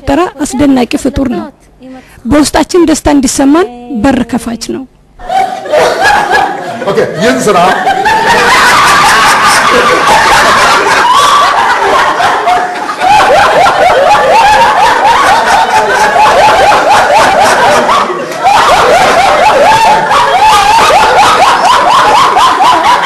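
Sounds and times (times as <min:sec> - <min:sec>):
people laughing hard: 0:05.2 - 0:23.0.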